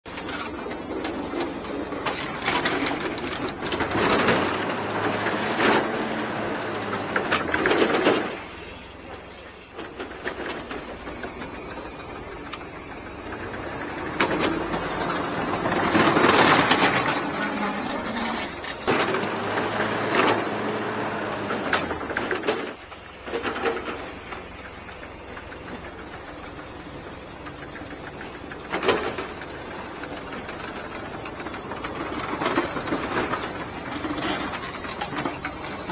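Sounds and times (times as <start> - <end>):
metallic rattling and clicks: 0.1 - 5.0
lift motor and winch running: 0.1 - 35.9.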